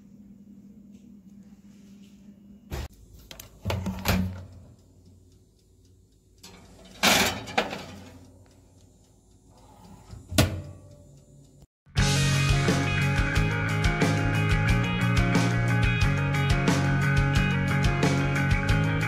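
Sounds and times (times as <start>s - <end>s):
oven door clacking shut: 3.6s - 4.6s, 6.5s - 8.2s, 10.3s - 10.8s
metal pan clattering in oven: 6.4s - 8.2s.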